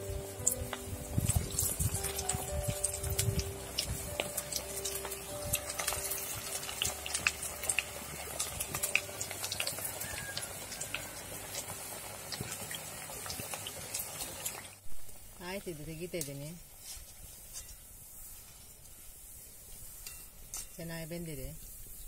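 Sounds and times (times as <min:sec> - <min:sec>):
deep-frying sizzle with pops: 0:00.0 - 0:16.5.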